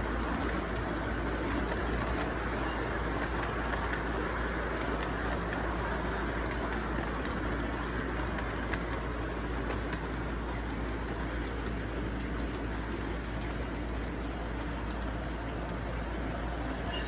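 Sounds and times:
model train rumbling on track: 0:00.0 - 0:17.0
faint clicks: 0:04.8 - 0:15.8.

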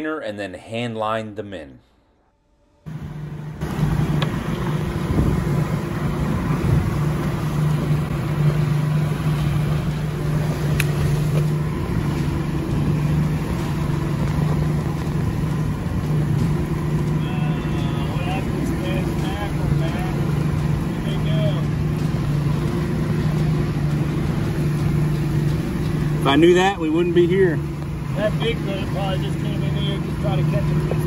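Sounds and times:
boat engine idling: 0:02.4 - 0:31.0
water noise: 0:02.9 - 0:31.0
wind noise: 0:03.6 - 0:18.1.

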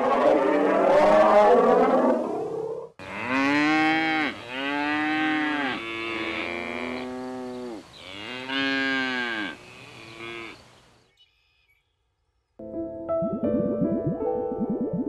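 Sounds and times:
cattle mooing: 0:03.0 - 0:10.6.

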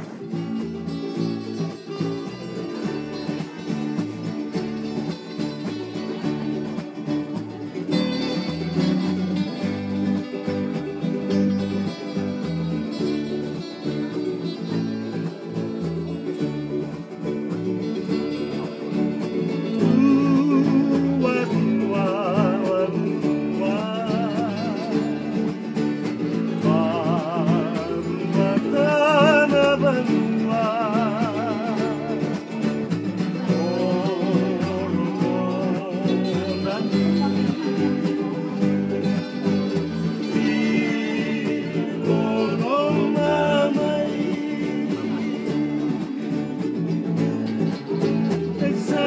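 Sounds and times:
acoustic guitars strummed: 0:00.0 - 0:49.0
person singing with vibrato: 0:19.7 - 0:39.0, 0:40.0 - 0:46.5, 0:48.4 - 0:49.0.

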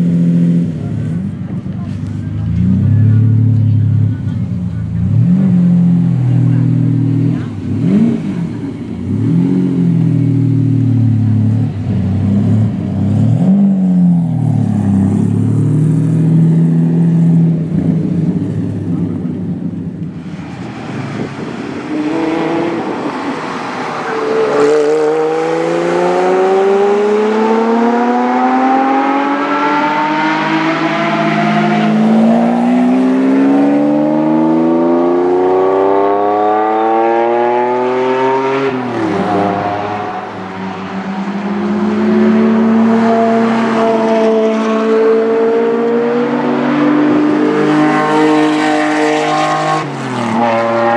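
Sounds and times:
car accelerating: 0:00.0 - 0:50.9
loud car engine revving: 0:00.0 - 0:50.9.

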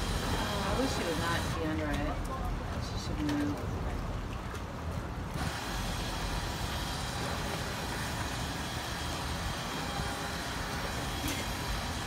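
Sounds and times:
winch running under load: 0:05.3 - 0:12.0.

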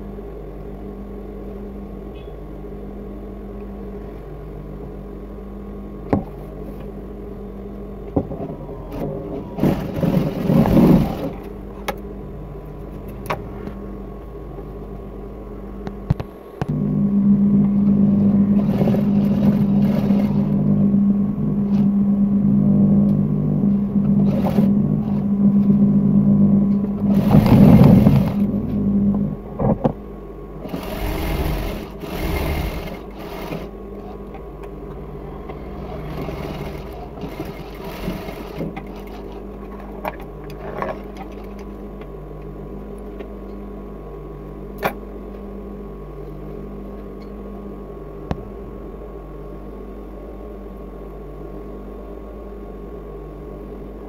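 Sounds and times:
steady machine hum: 0:00.0 - 0:54.0
sewing machine stitching: 0:08.9 - 0:11.5, 0:18.5 - 0:20.6, 0:24.2 - 0:25.2, 0:27.1 - 0:28.5, 0:30.6 - 0:34.2, 0:35.8 - 0:39.4.

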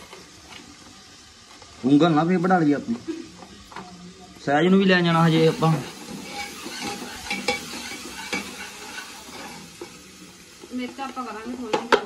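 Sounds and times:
food sizzling: 0:00.0 - 0:12.0
metal ladle scraping pot: 0:05.9 - 0:09.8.

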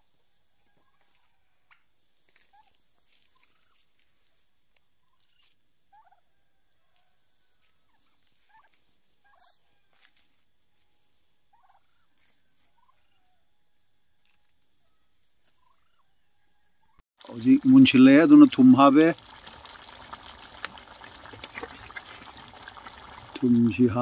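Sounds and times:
turkeys calling: 0:02.5 - 0:03.9, 0:05.0 - 0:06.3, 0:07.0 - 0:10.1, 0:11.5 - 0:13.5, 0:14.2 - 0:17.0.

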